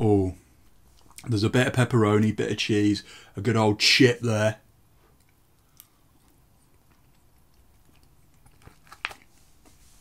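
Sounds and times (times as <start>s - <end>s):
man chewing food: 0.6s - 1.3s, 4.8s - 10.0s.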